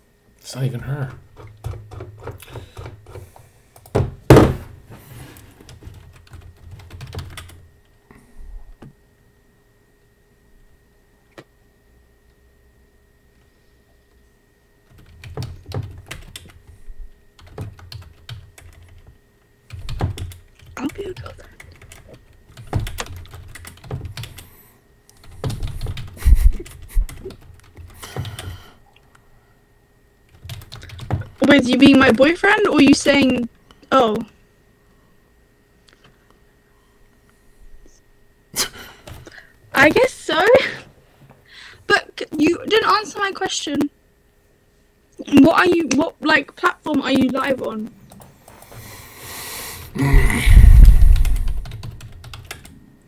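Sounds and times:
heavier thuds: 4.0s - 4.8s
loud thumps: 4.0s - 4.8s, 50.1s - 51.6s
typing on a keyboard: 5.7s - 7.6s, 14.8s - 16.6s, 17.4s - 19.1s, 19.7s - 24.4s, 30.3s - 33.5s, 51.2s - 52.8s
keyboard typing clicks: 51.1s - 52.7s.

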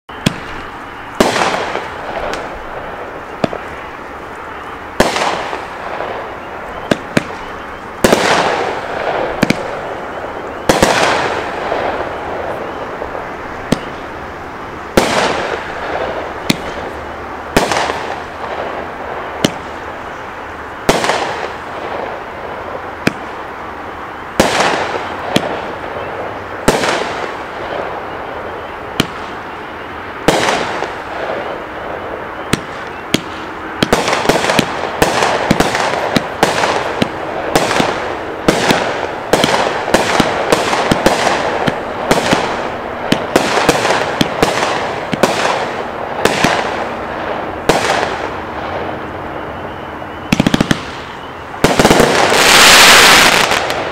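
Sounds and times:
firework cake bangs: 13.7s - 14.0s.

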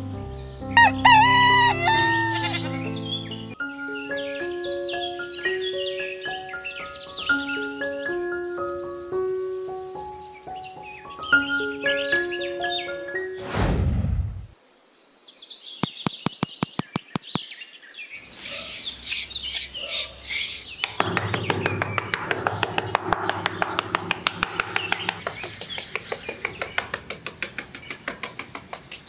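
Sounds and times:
birds chirping: 0.0s - 13.4s, 14.3s - 29.0s
trowel scraping sand: 18.2s - 20.8s
rapid even clicking: 20.8s - 29.0s.

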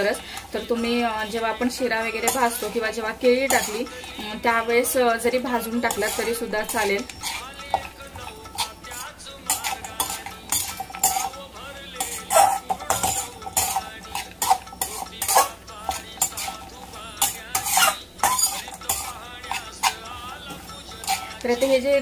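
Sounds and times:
metal spatula scraping a pan: 0.0s - 22.0s.

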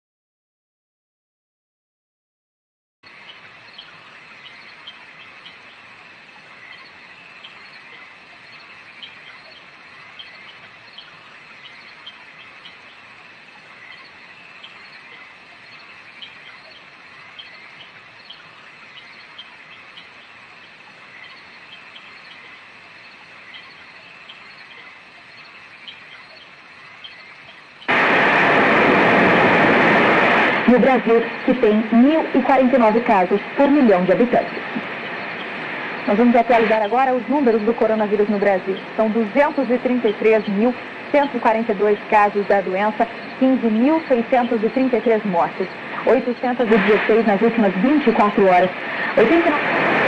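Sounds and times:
radio static rush: 27.8s - 50.0s.

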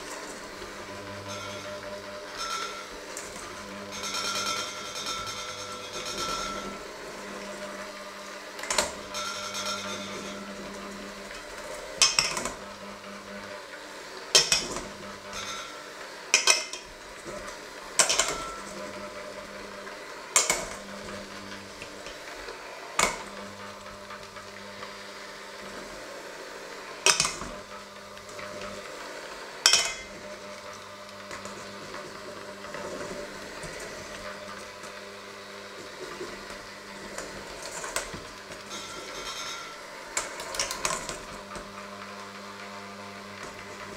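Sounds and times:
beaters clanking on metal bowl: 0.0s - 12.8s, 14.3s - 22.4s, 27.0s - 28.8s, 29.6s - 35.0s, 35.7s - 42.0s
electric hand mixer running: 0.0s - 43.9s.

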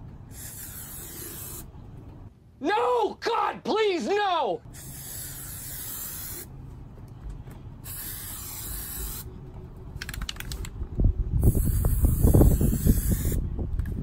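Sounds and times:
aerosol spray can hissing: 0.3s - 1.7s, 4.8s - 6.5s, 7.8s - 9.3s, 11.4s - 13.4s.

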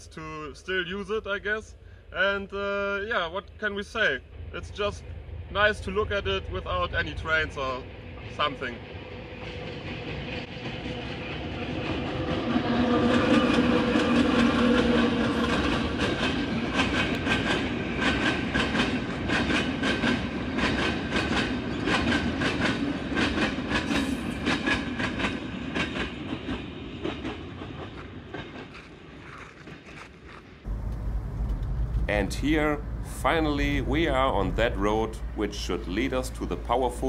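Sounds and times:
heavy train rumble: 3.8s - 29.2s, 30.6s - 37.0s
train wheels clicking over rail joints: 9.4s - 32.1s.

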